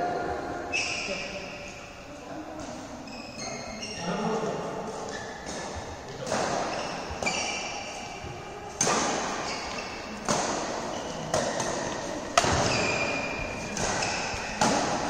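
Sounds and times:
badminton racket hitting shuttlecock: 0:05.1 - 0:15.0.

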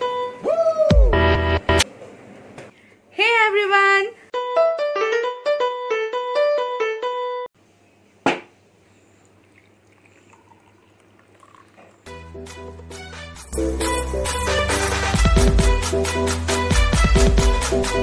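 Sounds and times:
water pouring into a glass: 0:09.2 - 0:12.2.

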